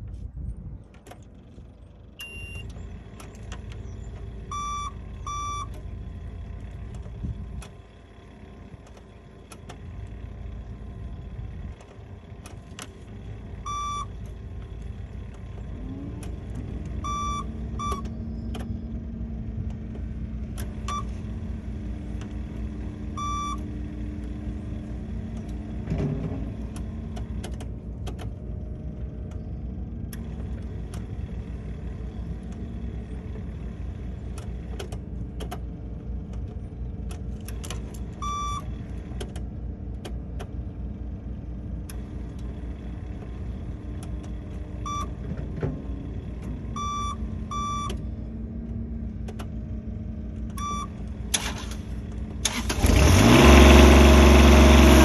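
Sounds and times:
roller engine running: 0:00.0 - 0:55.0
short electronic alarm beeps: 0:02.2 - 0:02.7, 0:04.5 - 0:05.7, 0:13.6 - 0:14.1, 0:17.0 - 0:18.1, 0:23.2 - 0:23.6, 0:38.2 - 0:38.7, 0:46.8 - 0:48.0, 0:50.6 - 0:50.9.

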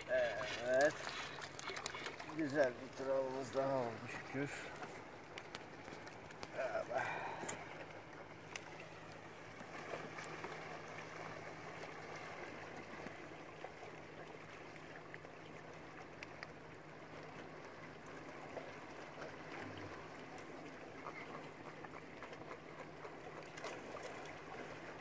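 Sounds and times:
faint steady low hum: 0:00.0 - 0:25.0
water lapping against hull: 0:00.0 - 0:25.0
faint small clicks: 0:05.3 - 0:06.6, 0:16.1 - 0:16.6.

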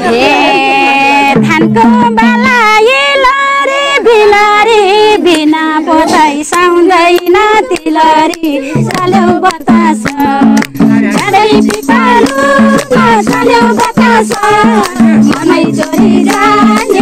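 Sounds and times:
woman singing folk song: 0:00.0 - 0:17.0
hand drum strokes: 0:08.7 - 0:17.0.

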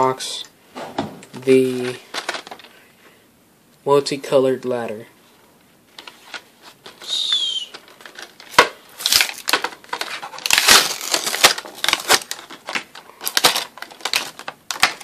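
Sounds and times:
plastic packaging crinkling: 0:01.3 - 0:02.8, 0:07.7 - 0:15.0.

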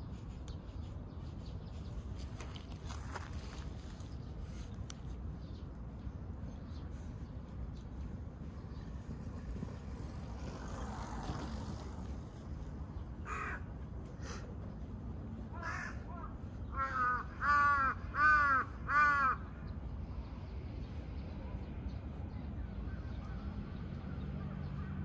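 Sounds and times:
crow cawing: 0:13.2 - 0:14.4, 0:15.5 - 0:19.5.

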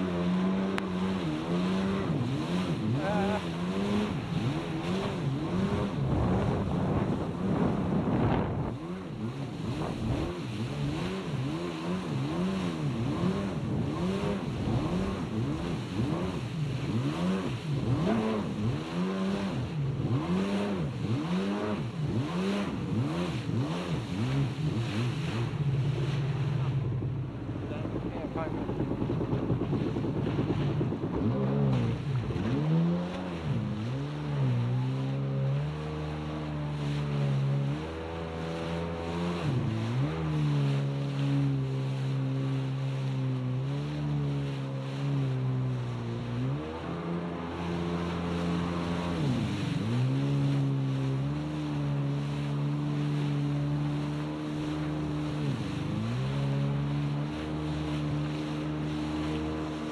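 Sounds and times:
wind on microphone: 0:00.0 - 0:35.5
jet ski engine revving: 0:00.0 - 0:59.9
water splashing off hull: 0:00.0 - 0:59.9.

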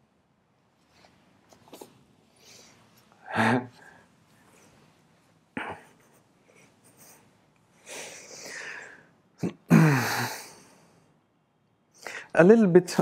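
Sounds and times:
man sighing: 0:09.7 - 0:10.8.

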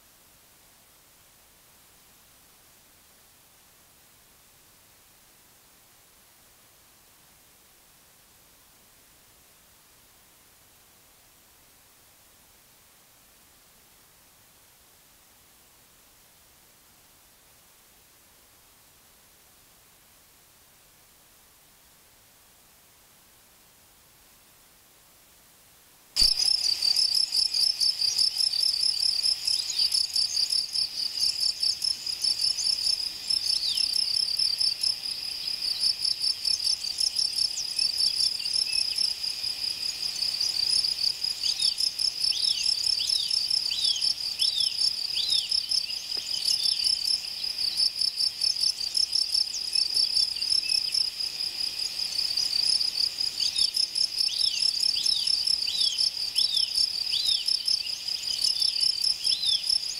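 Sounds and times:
crickets chirping: 0:26.2 - 0:59.9.

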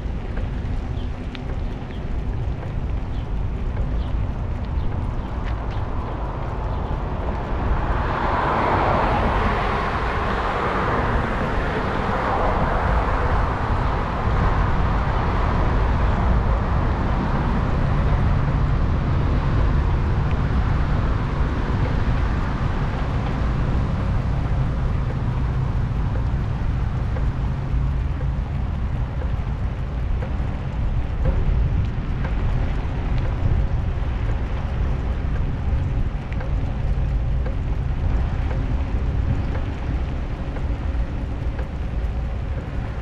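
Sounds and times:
road traffic: 0:00.0 - 0:43.0
wind rumbling on microphone: 0:00.0 - 0:43.0
vehicle passing: 0:05.9 - 0:15.0.

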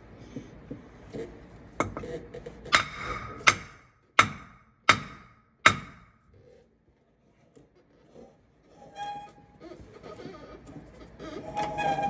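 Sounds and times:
hammer striking metal: 0:02.7 - 0:06.1.

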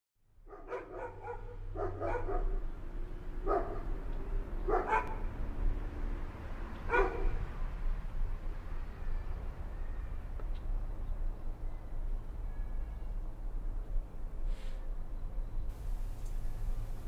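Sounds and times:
dog barking: 0:00.4 - 0:02.6, 0:03.4 - 0:03.9, 0:04.6 - 0:05.3, 0:06.9 - 0:07.4
steady low hum: 0:15.7 - 0:17.0.

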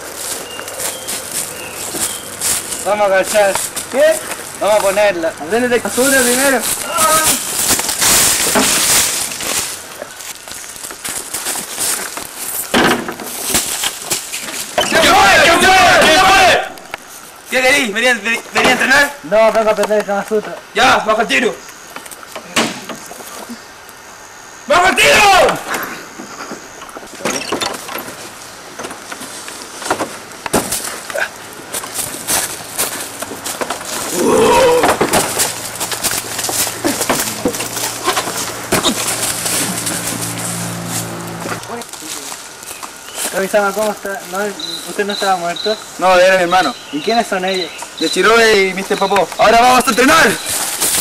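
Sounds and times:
footsteps through dry leaves: 0:00.0 - 0:14.8, 0:29.2 - 0:45.7, 0:48.8 - 0:51.0
crackling and snapping twigs: 0:00.0 - 0:15.0, 0:21.6 - 0:24.0, 0:27.8 - 0:46.0, 0:46.6 - 0:51.0.

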